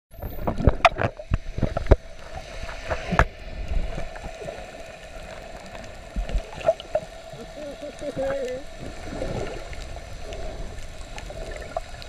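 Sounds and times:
underwater water hiss: 0:01.5 - 0:12.0
diver's exhaled bubbles popping: 0:10.3 - 0:12.0.

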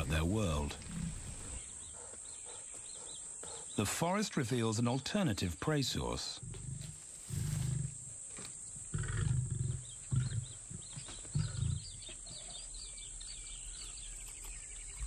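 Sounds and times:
lions growling: 0:00.0 - 0:03.8, 0:06.4 - 0:08.1, 0:08.9 - 0:12.0.

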